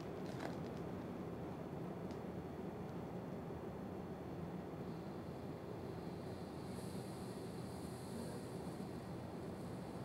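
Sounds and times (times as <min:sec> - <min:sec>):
faint low hum and hiss: 0:00.0 - 0:10.0.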